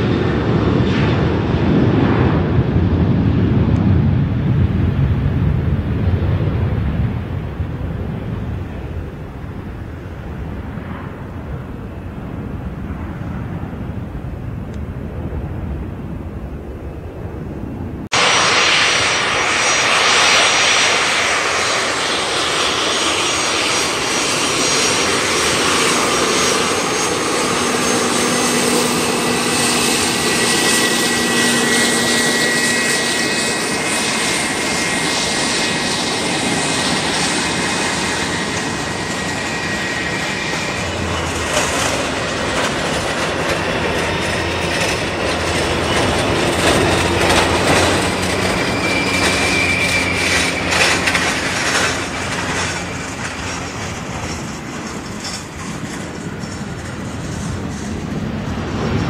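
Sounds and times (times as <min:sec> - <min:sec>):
deep rumble: 0:00.0 - 0:34.3, 0:35.1 - 0:59.0
jet airliner engine noise: 0:00.0 - 0:59.0
faint high whine: 0:47.9 - 0:53.5.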